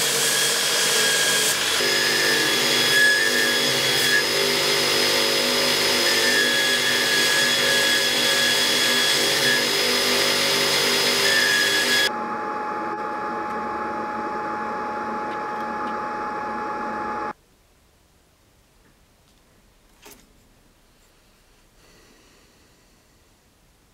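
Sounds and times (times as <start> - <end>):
belt grinder grinding metal: 0.0 - 12.1.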